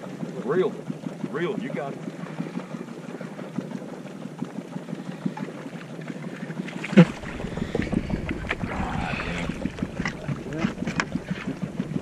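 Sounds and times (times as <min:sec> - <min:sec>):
water sloshing against boat hull: 0:00.1 - 0:12.0
loud splash of fish thrashing: 0:06.8 - 0:11.5.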